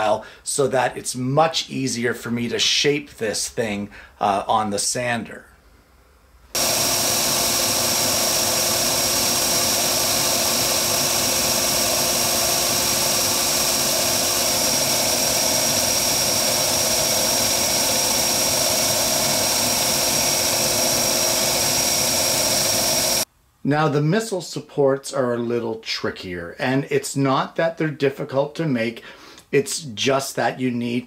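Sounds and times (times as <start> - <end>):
belt sander whirring: 6.6 - 23.3.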